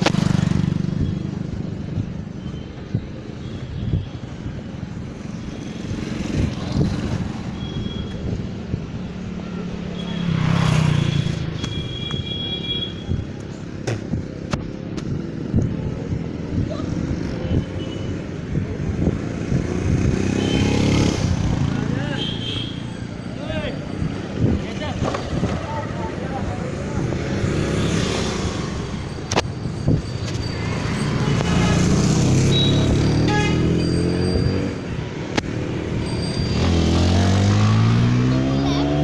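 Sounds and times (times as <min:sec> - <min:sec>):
road traffic noise: 0:00.0 - 0:39.0
motorcycle passing: 0:09.3 - 0:11.6, 0:19.2 - 0:22.9, 0:24.4 - 0:29.1, 0:30.4 - 0:39.0.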